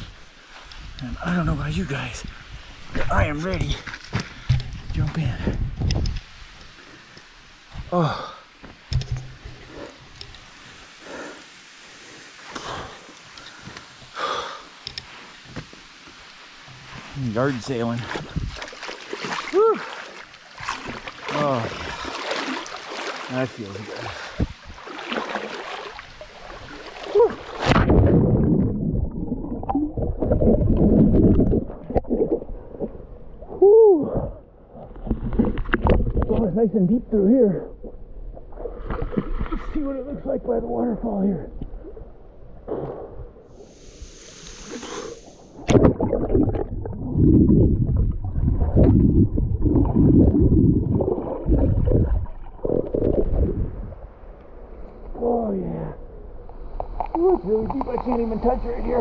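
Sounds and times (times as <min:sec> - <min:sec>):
water splashing and lapping: 0:00.0 - 0:36.4, 0:37.7 - 0:55.5
muffled underwater sloshing: 0:16.6 - 0:33.6, 0:37.7 - 0:55.0
person crying out: 0:19.5 - 0:19.9, 0:33.6 - 0:34.2.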